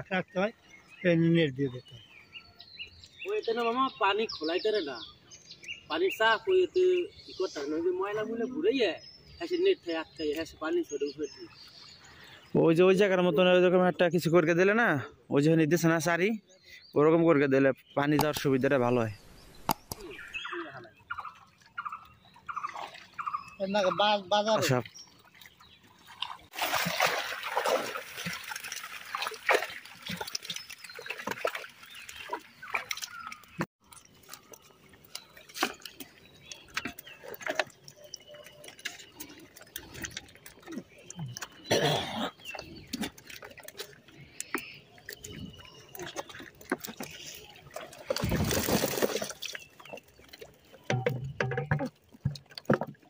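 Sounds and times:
water splashing and streaming: 0.0s - 16.2s, 17.4s - 53.0s
water and fish pouring into crate: 26.5s - 32.0s, 48.0s - 49.7s.

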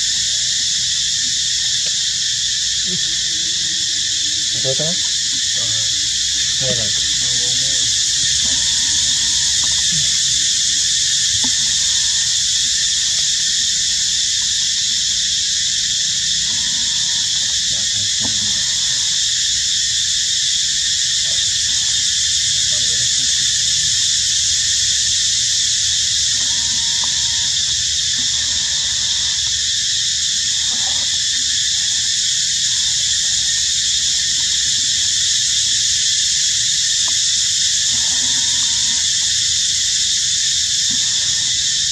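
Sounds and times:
faint animal calls: 0.0s - 15.2s, 16.1s - 19.7s, 25.7s - 35.5s, 37.7s - 39.8s, 40.6s - 41.9s
insect chorus drone: 0.0s - 41.9s.

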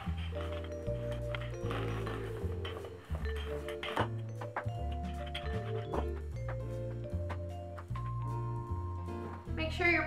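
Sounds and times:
background music with bass notes: 0.0s - 10.0s.

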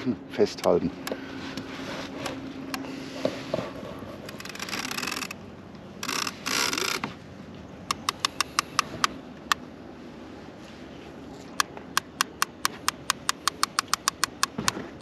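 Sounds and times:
fishing reel clicks: 4.3s - 5.4s, 6.0s - 7.0s, 7.9s - 9.2s, 12.0s - 14.6s
fishing reel drag buzzing: 4.3s - 5.4s, 6.0s - 7.1s.

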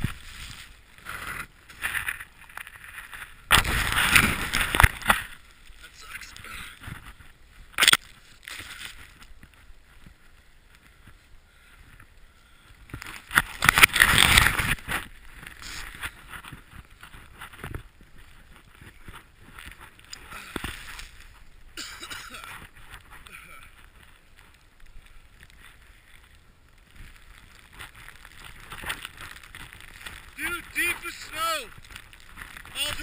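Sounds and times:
snowboard sliding through powder: 0.0s - 11.9s, 12.6s - 33.0s
branch knocking camera: 3.5s - 5.4s, 7.8s - 9.1s
rush of spraying snow: 15.6s - 16.0s.

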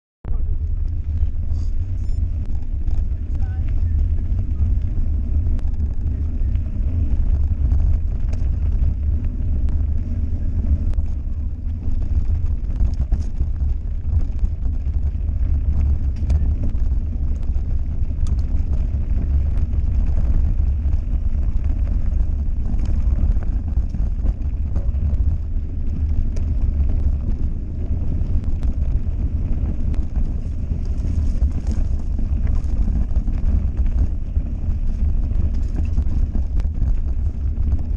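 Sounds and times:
tyres over dirt and stones: 0.3s - 37.9s
wind buffeting microphone: 0.3s - 37.9s
bike clicks and rattles: 0.6s - 37.9s.

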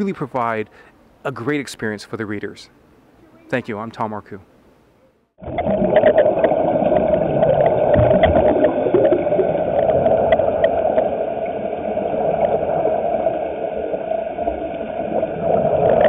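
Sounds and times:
air bubbling underwater: 5.4s - 16.0s.

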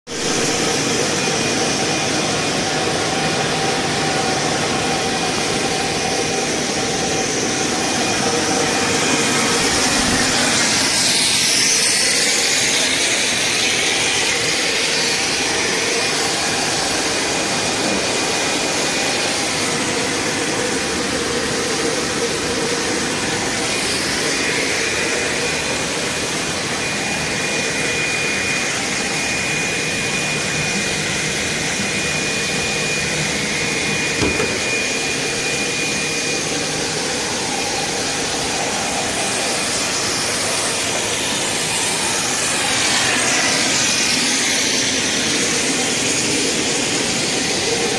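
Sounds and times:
extrusion machine hiss and hum: 0.1s - 47.9s
machine knock: 34.2s - 34.8s.

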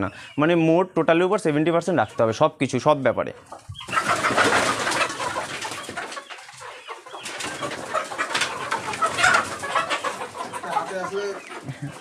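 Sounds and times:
chickens clucking and calling: 0.0s - 12.0s
person moving among chickens: 3.4s - 12.0s.

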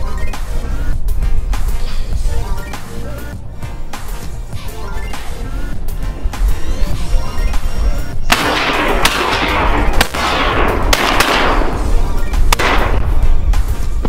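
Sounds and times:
background music: 0.0s - 14.0s
shotgun shots with echo: 8.3s - 13.3s.

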